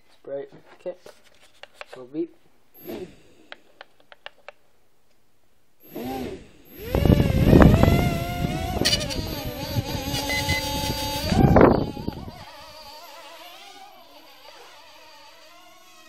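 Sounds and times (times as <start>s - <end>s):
toy quadcopter motors buzzing: 2.8s - 3.3s, 5.8s - 16.0s.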